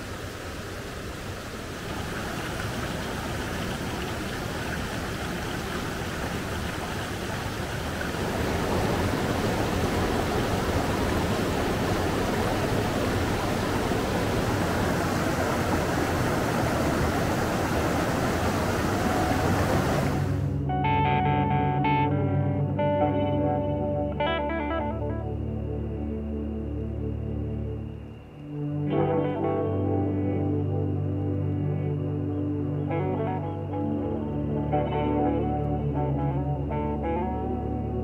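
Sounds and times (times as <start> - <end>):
flowing water rushing: 0.0 - 20.6.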